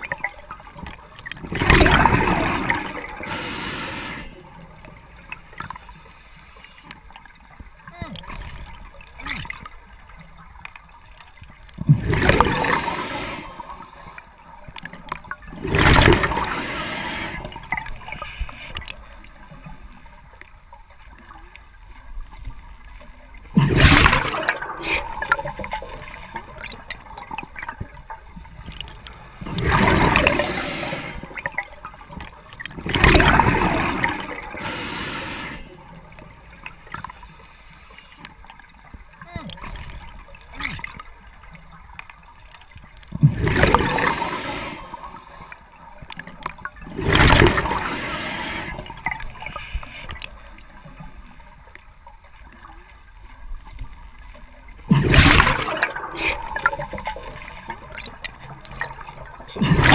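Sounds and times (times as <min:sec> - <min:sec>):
exhaled bubbles underwater: 0:00.0 - 0:06.0, 0:08.2 - 0:19.8, 0:21.1 - 0:37.2, 0:38.6 - 0:59.9
water hiss: 0:01.8 - 0:04.6, 0:05.5 - 0:07.2, 0:12.1 - 0:14.4, 0:15.7 - 0:20.2, 0:23.7 - 0:28.1, 0:28.8 - 0:31.6, 0:33.1 - 0:38.5, 0:43.7 - 0:45.8, 0:47.2 - 0:51.5, 0:55.0 - 0:59.9.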